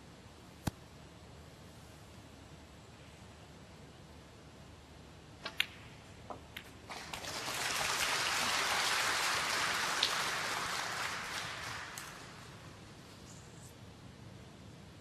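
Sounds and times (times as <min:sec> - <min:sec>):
audience applause: 0:06.9 - 0:12.8.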